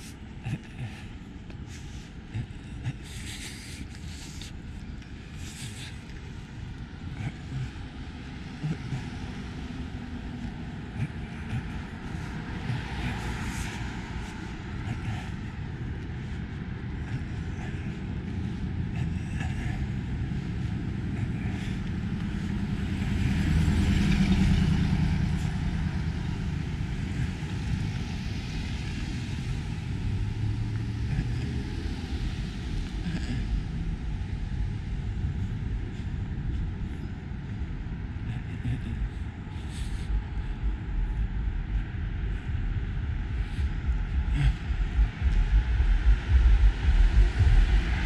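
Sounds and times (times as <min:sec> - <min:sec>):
low rumble of cars: 0:00.0 - 0:48.0
vehicle passing: 0:05.2 - 0:38.2.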